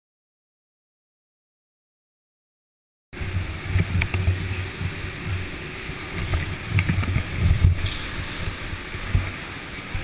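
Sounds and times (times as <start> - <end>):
steady hiss: 3.2 - 10.0.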